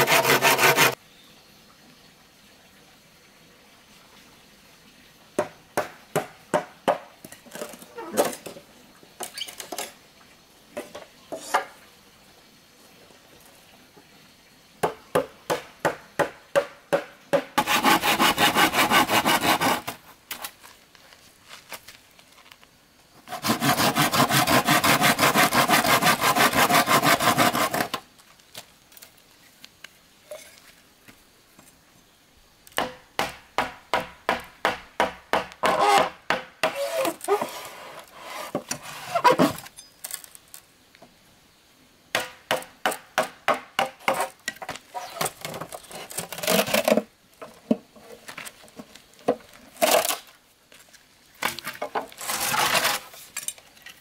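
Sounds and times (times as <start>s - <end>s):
machete sawing bamboo: 0.0s - 1.0s, 17.6s - 20.0s, 23.3s - 28.0s, 35.6s - 39.7s, 44.0s - 47.0s, 52.2s - 53.1s.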